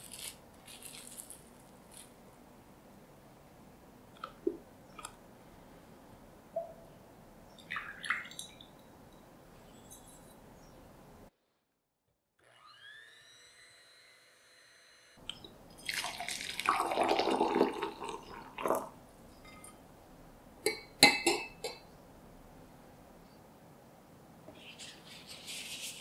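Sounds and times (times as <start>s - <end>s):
water poured over ice: 15.8s - 18.9s.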